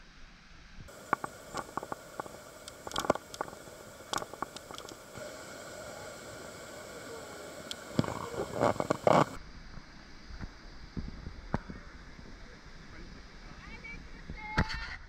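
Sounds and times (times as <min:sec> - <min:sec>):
river water rushing: 0:00.9 - 0:09.4.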